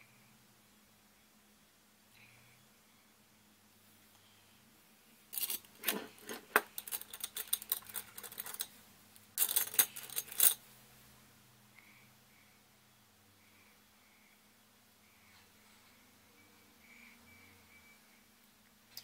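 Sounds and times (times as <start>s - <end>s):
makeup items rattling on table: 5.4s - 8.7s, 9.4s - 10.6s.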